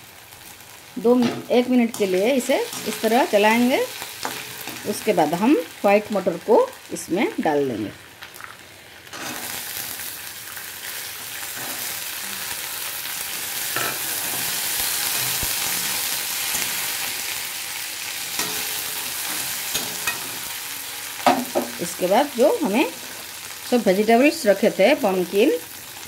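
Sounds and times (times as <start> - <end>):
peas sizzling in hot oil: 0.0 - 26.0
metal spatula scraping pan: 9.1 - 9.6.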